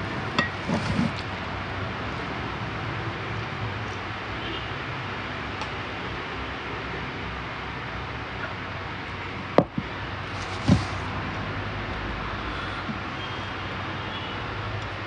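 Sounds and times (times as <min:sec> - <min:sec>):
dull thump: 0:09.6 - 0:11.0.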